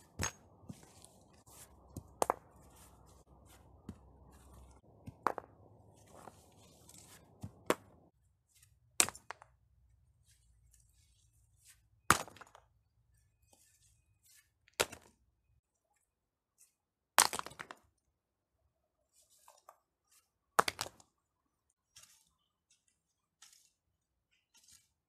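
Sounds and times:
stones clacking onto a pile: 0.0 - 0.8, 3.8 - 6.3.

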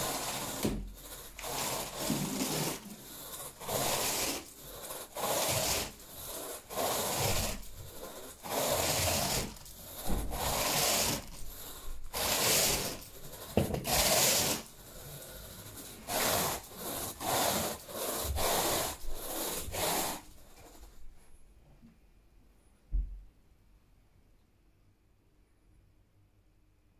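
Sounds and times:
carpet rake dragged through carpet: 0.0 - 21.0.

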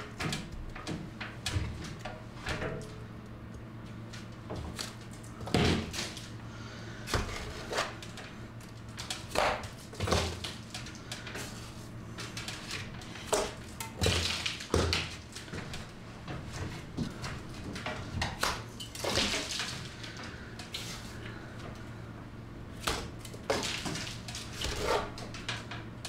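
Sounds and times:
metal scraper scraping render: 24.6 - 25.2.

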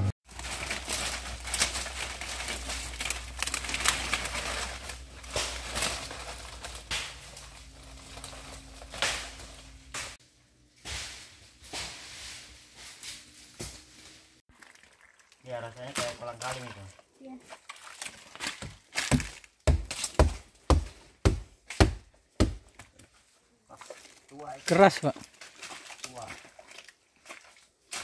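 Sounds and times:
dry palm fronds crackling: 0.2 - 10.2, 23.7 - 28.0.

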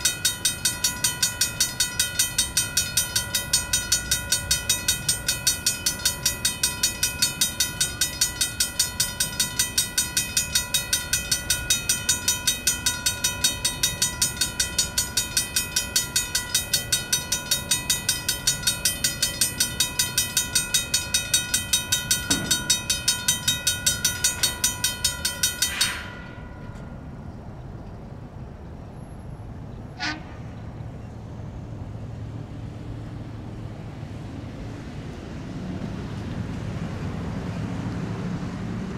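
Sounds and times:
railroad crossing bell ringing: 0.0 - 30.2
low traffic rumble: 0.0 - 38.9.

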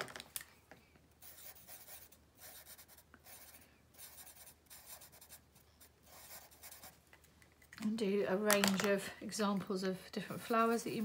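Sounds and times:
marker drawing on paper: 1.2 - 7.0, 10.3 - 11.0.

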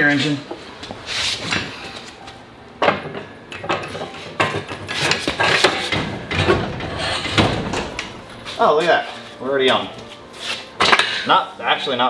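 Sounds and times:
metal clanks and scrapes: 2.8 - 11.3.

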